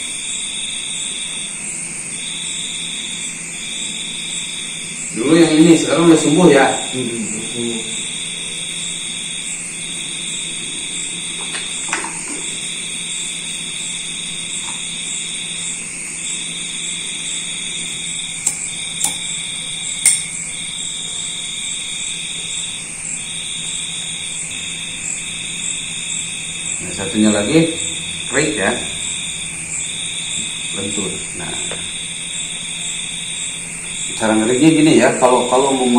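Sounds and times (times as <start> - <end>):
drinking glass clicks and taps: 18.4 - 19.2
high-pitched trill: 19.8 - 21.4.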